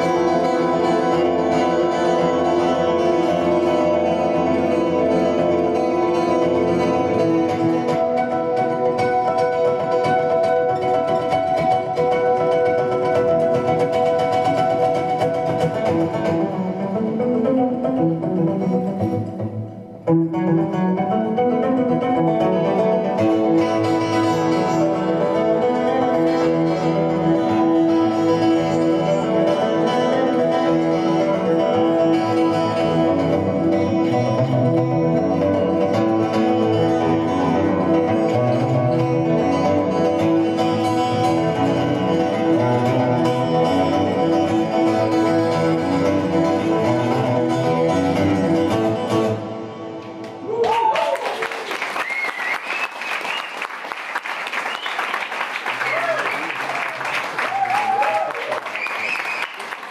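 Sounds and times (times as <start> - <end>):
fingerpicked acoustic guitar: 0.0 - 50.5
audience applause: 50.4 - 59.9
audience calling out: 55.7 - 59.9.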